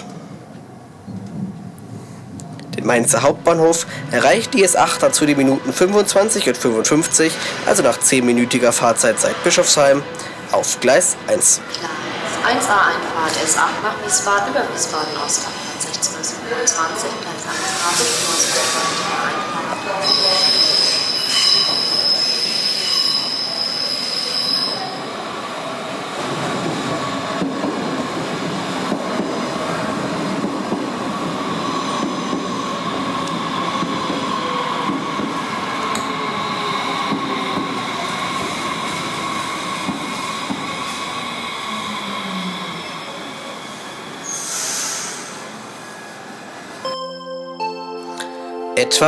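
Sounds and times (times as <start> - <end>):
train rumbling: 0.0 - 22.9, 25.0 - 46.8
train wheel squeal: 17.5 - 25.1, 35.9 - 46.6.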